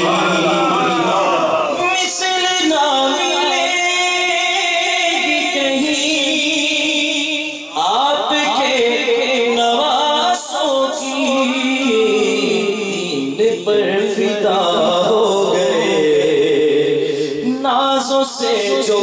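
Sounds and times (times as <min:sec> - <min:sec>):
man singing into a microphone: 0:00.0 - 0:19.0.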